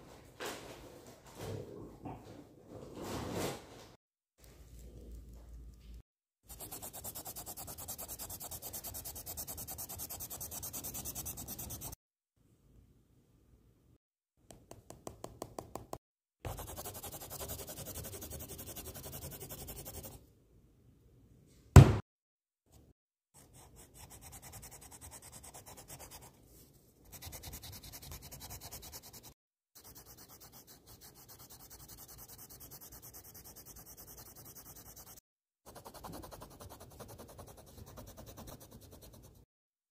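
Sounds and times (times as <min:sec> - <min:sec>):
pencil scratching on paper: 0:06.5 - 0:12.0, 0:16.5 - 0:20.2, 0:23.4 - 0:26.4, 0:27.0 - 0:39.4
sharp loud knock: 0:21.8 - 0:22.0.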